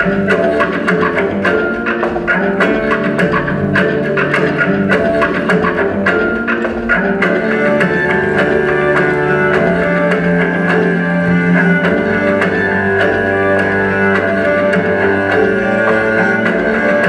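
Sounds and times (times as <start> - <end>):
bowed cello lines: 0.0 - 17.0.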